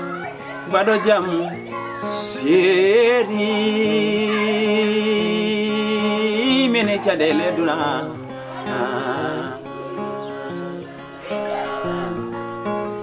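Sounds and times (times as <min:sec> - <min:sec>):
strummed acoustic guitar: 0:00.0 - 0:13.0
man singing: 0:00.7 - 0:10.5.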